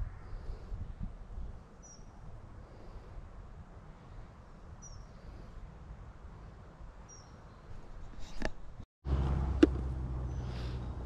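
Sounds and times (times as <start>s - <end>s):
faint high bird chirps: 1.8s - 2.2s, 4.8s - 5.2s, 7.0s - 7.8s.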